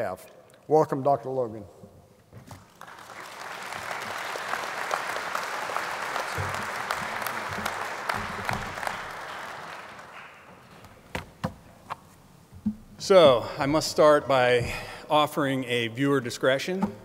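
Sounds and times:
audience applauding: 0:02.6 - 0:10.9.

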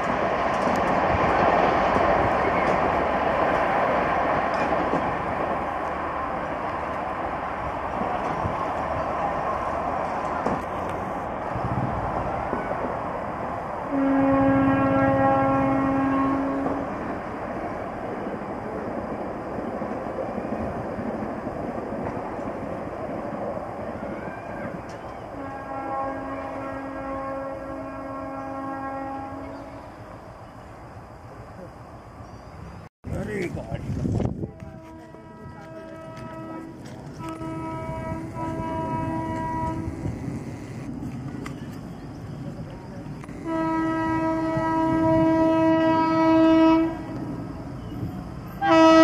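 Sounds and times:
distant train rushing on track: 0:00.0 - 0:49.0
train horn blasts: 0:13.9 - 0:17.0, 0:25.3 - 0:30.1, 0:34.4 - 0:40.9, 0:43.2 - 0:47.2, 0:48.6 - 0:49.0.

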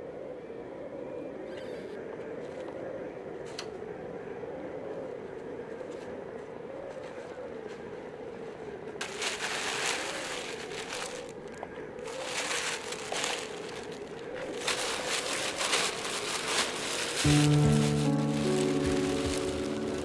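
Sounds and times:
plastic bag rustling: 0:09.0 - 0:20.0.

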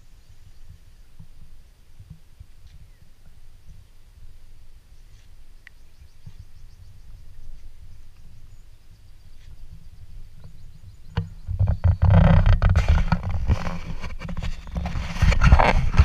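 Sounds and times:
low irregular rumbling: 0:05.9 - 0:16.0.

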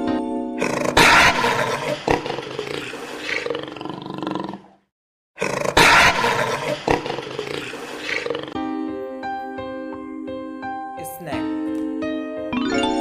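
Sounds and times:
tiger roaring: 0:00.6 - 0:04.8, 0:05.4 - 0:08.6.

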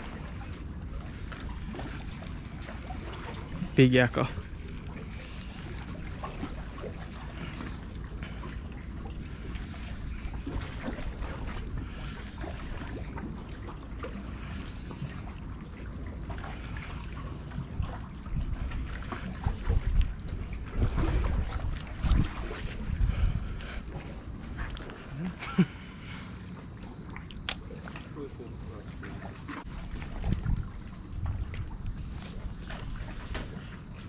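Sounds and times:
wind buffeting microphone: 0:17.5 - 0:24.2.

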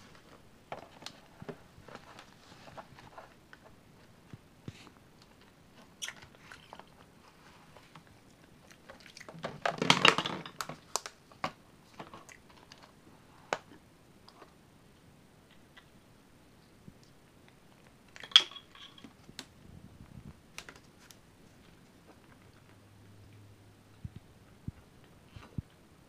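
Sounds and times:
plastic clatter: 0:09.3 - 0:12.9.

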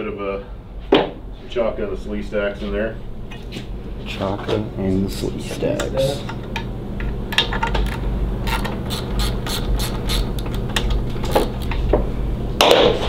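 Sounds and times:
ratchet wrench clicking: 0:07.8 - 0:10.5.

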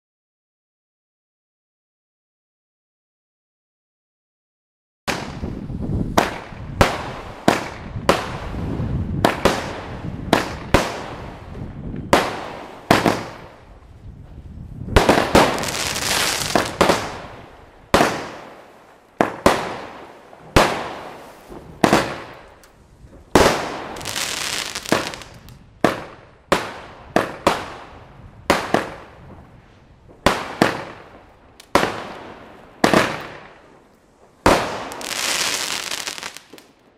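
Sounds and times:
firework bangs: 0:05.1 - 0:13.7, 0:14.8 - 0:33.8, 0:34.4 - 0:36.8
firework hissing: 0:15.4 - 0:17.1, 0:23.8 - 0:25.5, 0:34.7 - 0:36.6.

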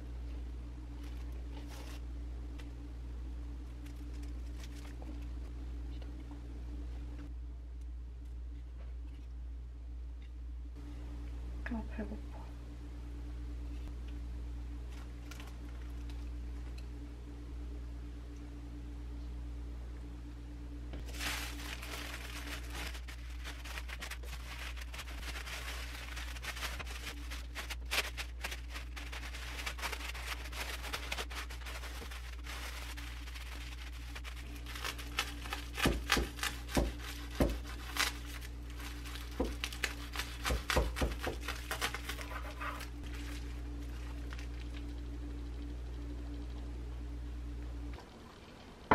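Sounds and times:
steady low hum: 0:00.0 - 0:48.9
plastic bag and paper crinkling: 0:01.0 - 0:02.1, 0:03.6 - 0:05.4, 0:14.9 - 0:16.3, 0:21.0 - 0:45.0.

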